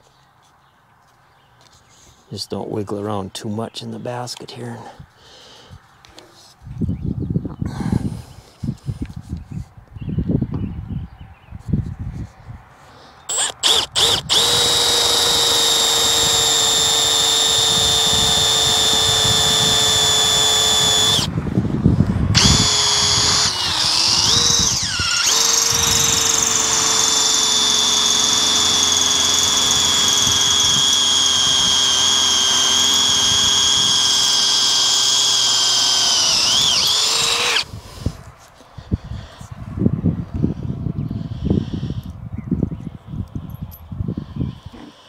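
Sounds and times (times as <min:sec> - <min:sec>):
cordless drill motor whining: 0:13.3 - 0:21.3, 0:22.3 - 0:37.8.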